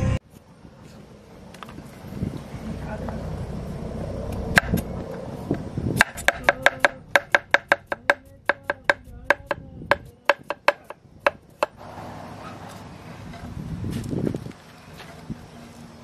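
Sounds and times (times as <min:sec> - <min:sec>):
cleaver chopping on cutting board: 0:06.0 - 0:11.8.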